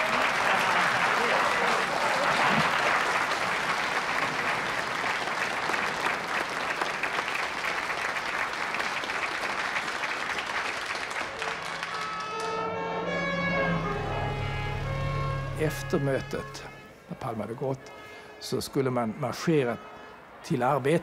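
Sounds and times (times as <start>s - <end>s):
large audience applauding: 0.0s - 14.9s.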